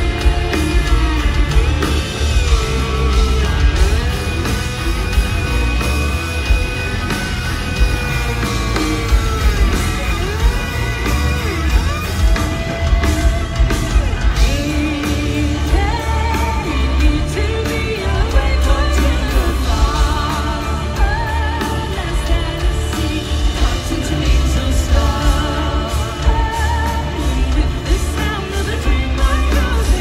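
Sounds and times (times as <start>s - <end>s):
live rock band playing: 0.0s - 30.0s.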